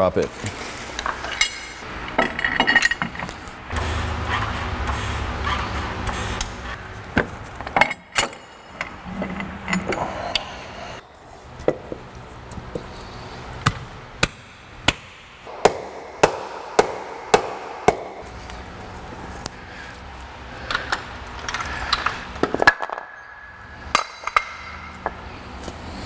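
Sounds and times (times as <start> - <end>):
metal parts knocking and clinking: 1.0 - 3.5, 7.1 - 10.7.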